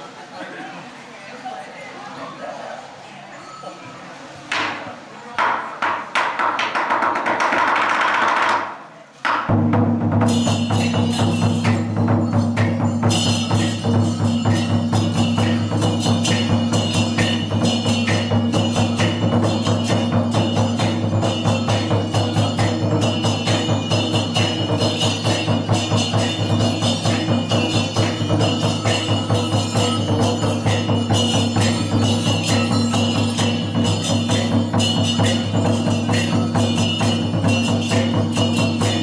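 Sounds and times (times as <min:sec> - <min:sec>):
drum beaten with sticks: 0:04.5 - 0:39.0
hand cymbals clashing: 0:09.5 - 0:39.0.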